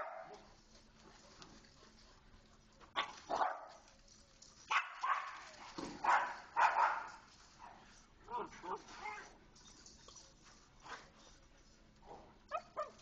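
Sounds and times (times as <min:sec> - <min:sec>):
dogs barking: 0:02.9 - 0:03.8, 0:04.7 - 0:07.2.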